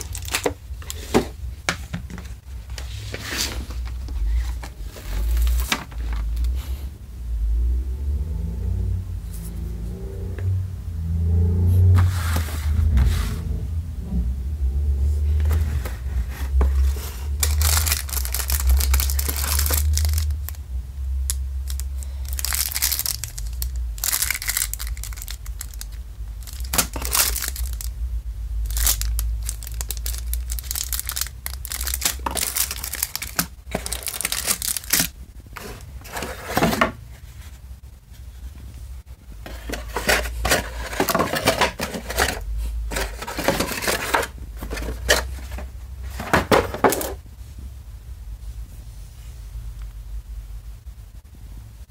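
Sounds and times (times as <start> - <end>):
plastic shrink-wrap crinkling: 0.0 - 1.3, 16.7 - 20.6, 21.3 - 28.0, 28.6 - 36.9, 39.4 - 47.2
low handling rumble: 0.0 - 51.9
cardboard insert sliding and flapping: 2.2 - 6.4, 12.0 - 13.4, 31.8 - 37.6, 39.5 - 47.2.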